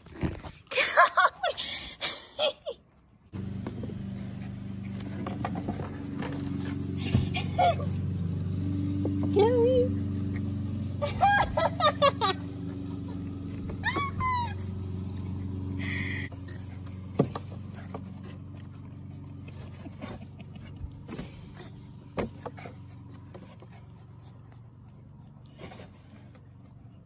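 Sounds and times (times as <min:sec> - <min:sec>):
dog pawing at cardboard box: 0:04.9 - 0:06.9, 0:16.4 - 0:18.6.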